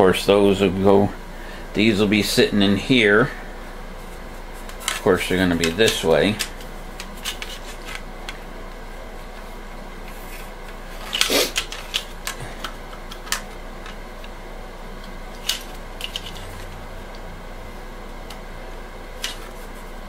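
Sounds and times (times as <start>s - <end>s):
steady low hum: 0.0s - 20.0s
plastic pieces clicking: 11.1s - 14.0s.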